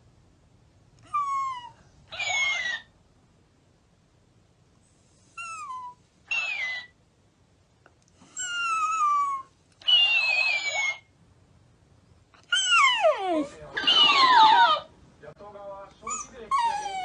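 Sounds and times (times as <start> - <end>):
dog whining: 1.0 - 2.9, 5.4 - 7.0, 8.2 - 11.1, 12.4 - 14.9, 16.0 - 17.0
talking toy mimicking whines: 1.1 - 2.9, 5.5 - 7.0, 8.4 - 11.1.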